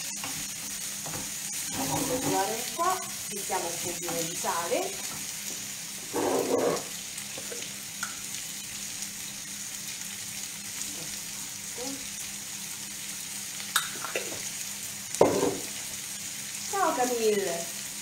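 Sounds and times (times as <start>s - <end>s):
food sizzling in a frying pan: 0.0s - 18.0s.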